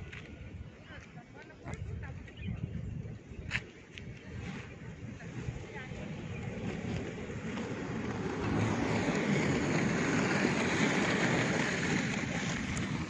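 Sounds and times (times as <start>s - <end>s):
skate wheels rolling on asphalt: 0.0s - 13.0s.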